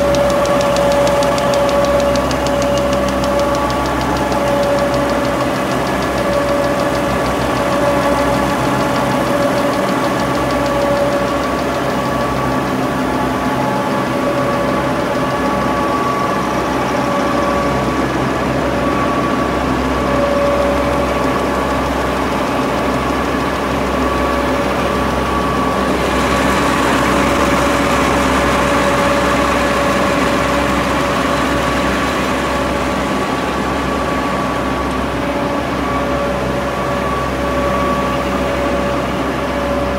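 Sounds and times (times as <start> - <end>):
printing press mechanical drone: 0.0 - 39.9.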